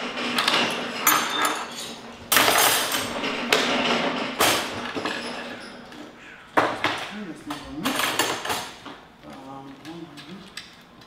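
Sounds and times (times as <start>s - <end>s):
metal folding table clanking: 0.0s - 5.9s.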